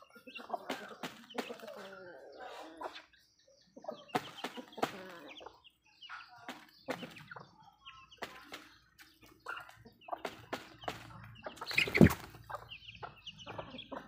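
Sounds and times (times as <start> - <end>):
chickens clucking: 0.0 - 14.0
beaks pecking on concrete: 0.1 - 3.1, 3.8 - 14.0.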